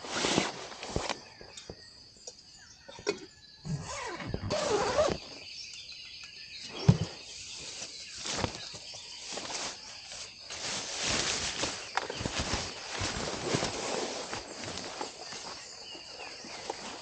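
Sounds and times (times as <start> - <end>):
nylon tent fabric rustling: 0.0 - 1.4, 3.9 - 5.4, 7.2 - 17.0
insects chorus: 0.0 - 17.0.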